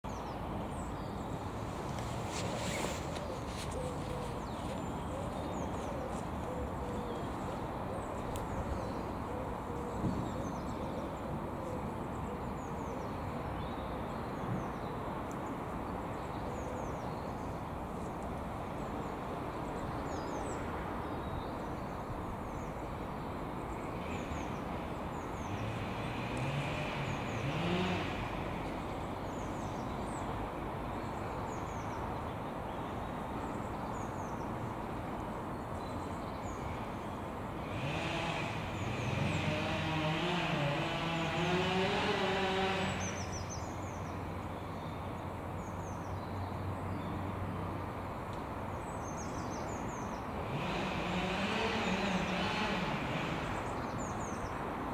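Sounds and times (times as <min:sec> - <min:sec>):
small birds chirping: 0:00.0 - 0:47.2
road traffic rumble: 0:00.1 - 0:54.9
vehicle passing: 0:25.4 - 0:29.8, 0:37.5 - 0:43.6, 0:50.3 - 0:54.3.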